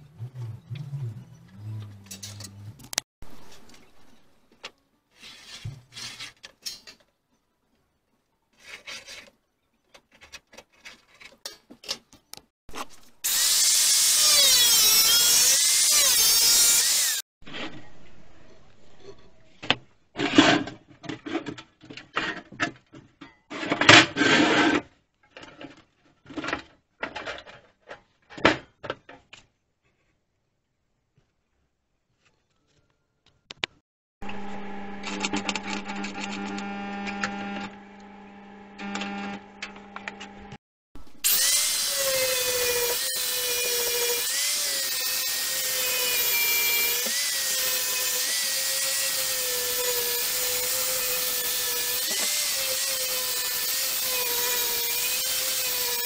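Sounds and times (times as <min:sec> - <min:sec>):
metal knocks and scrapes: 0:01.8 - 0:04.3
angle grinder cutting steel: 0:12.8 - 0:17.2, 0:34.2 - 0:56.0.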